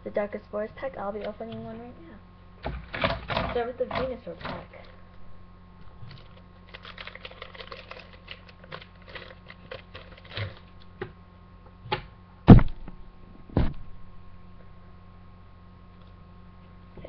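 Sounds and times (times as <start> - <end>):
foil wrapper crinkling and tearing: 6.1 - 10.8.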